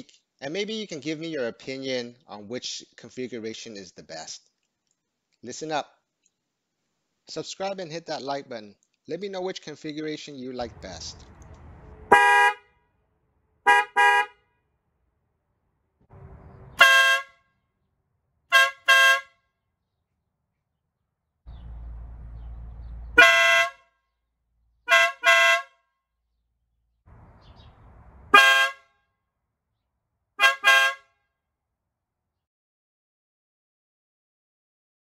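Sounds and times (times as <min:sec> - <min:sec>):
air horn honks: 0:12.1 - 0:12.7, 0:13.6 - 0:14.4, 0:16.7 - 0:17.4, 0:18.5 - 0:19.4, 0:23.2 - 0:23.8, 0:24.9 - 0:25.8, 0:28.3 - 0:28.9, 0:30.4 - 0:31.1
car horn honks: 0:12.1 - 0:12.8, 0:13.6 - 0:14.4, 0:16.6 - 0:17.5, 0:18.5 - 0:19.4, 0:23.1 - 0:23.9, 0:24.9 - 0:25.8, 0:28.3 - 0:28.9, 0:30.4 - 0:31.1.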